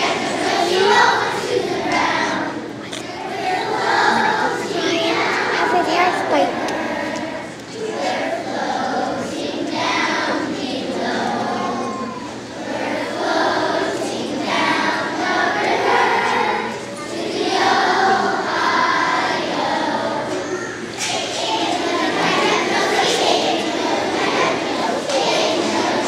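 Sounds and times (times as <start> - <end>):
children's choir singing: 0.0 - 26.0.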